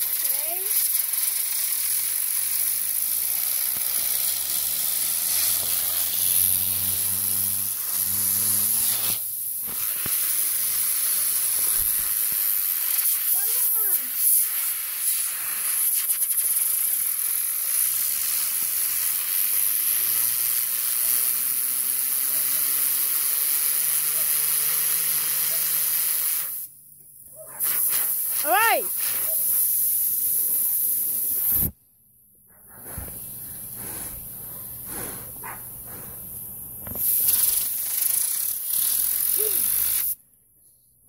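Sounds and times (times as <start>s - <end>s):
compressed air hissing: 0.0s - 26.7s, 27.5s - 31.8s, 32.5s - 40.2s.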